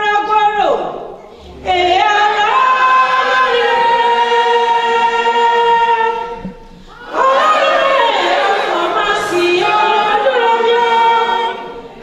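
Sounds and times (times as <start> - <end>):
woman singing unaccompanied: 1.6 - 6.4, 7.1 - 11.8.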